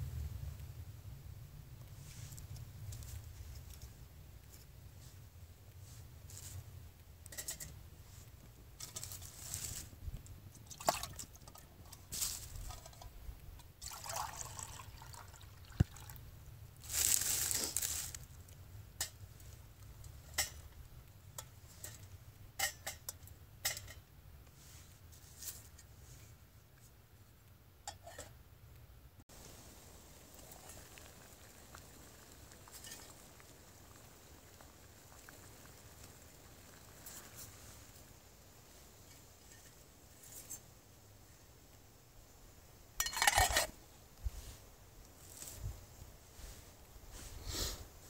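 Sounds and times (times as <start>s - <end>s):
water pouring into metal cup: 10.7s - 11.6s, 13.8s - 16.2s
metal cookware clinking: 43.0s - 43.7s.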